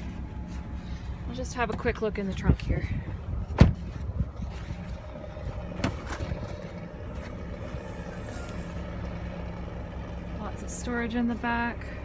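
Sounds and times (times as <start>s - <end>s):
steady low hum: 0.0s - 12.0s
car door shutting: 3.5s - 4.0s.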